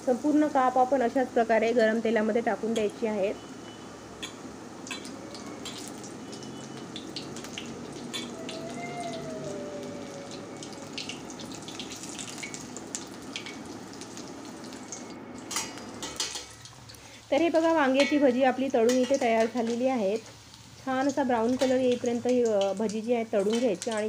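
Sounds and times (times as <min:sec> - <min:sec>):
food deep-frying in oil: 0:00.0 - 0:24.0
oil pops and crackles: 0:11.0 - 0:17.0.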